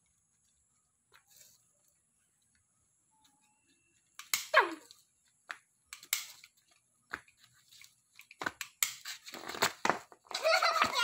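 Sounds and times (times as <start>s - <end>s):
toy pistols clicking: 5.9s - 6.5s.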